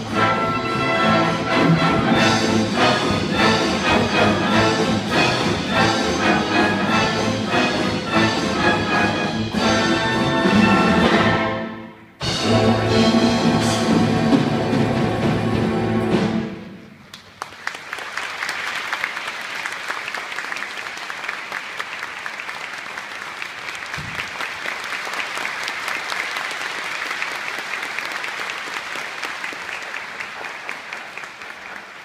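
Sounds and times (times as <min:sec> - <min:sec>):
audience applause: 0:17.0 - 0:32.0.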